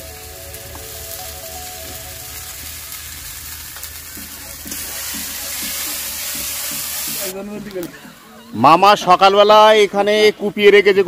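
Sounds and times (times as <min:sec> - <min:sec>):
paste sizzling in hot oil: 0:00.0 - 0:07.8.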